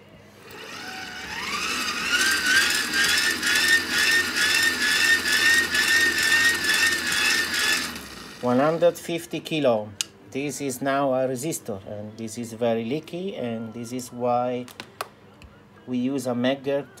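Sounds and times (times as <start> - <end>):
hand-cranked generator whining: 0.5 - 8.6.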